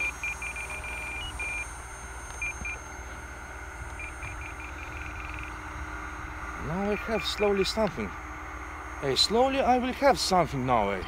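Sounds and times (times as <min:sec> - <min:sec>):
radio transmitter short high beeps: 0:00.0 - 0:01.7.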